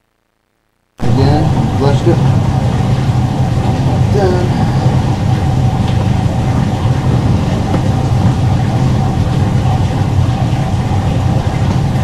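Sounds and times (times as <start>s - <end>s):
faint higher hum: 0.0s - 12.0s
low mechanical drone: 1.0s - 12.0s.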